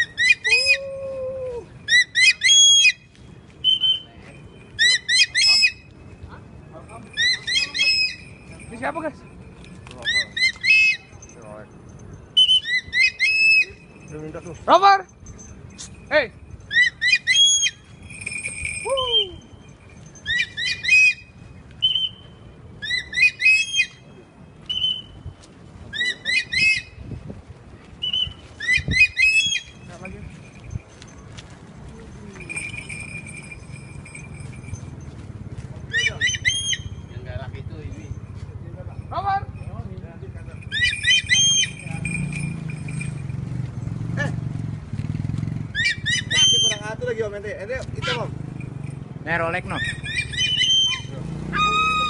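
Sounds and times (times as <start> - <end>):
eagle calling sharp notes: 0.0 - 11.5, 12.2 - 15.0, 15.8 - 27.1, 27.9 - 30.9, 35.8 - 38.4, 40.4 - 43.4, 45.6 - 48.6, 49.4 - 52.0
low held whistle tone: 0.1 - 5.9, 16.8 - 24.1, 24.7 - 27.0.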